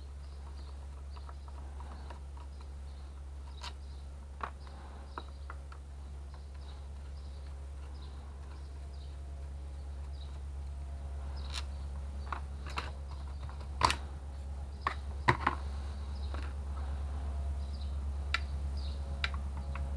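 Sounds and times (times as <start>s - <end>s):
steady low hum: 0.0s - 19.9s.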